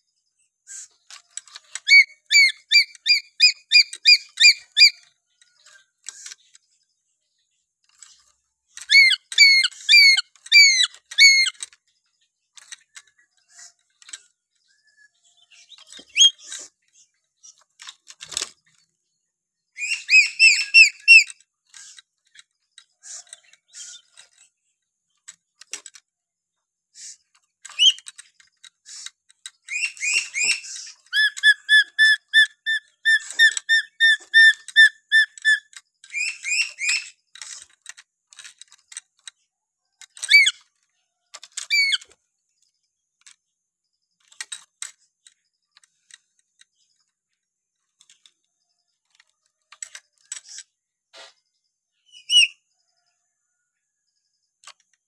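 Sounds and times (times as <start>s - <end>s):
parrot whistling: 1.9s - 5.0s, 8.9s - 11.5s, 19.8s - 21.3s, 29.7s - 37.0s.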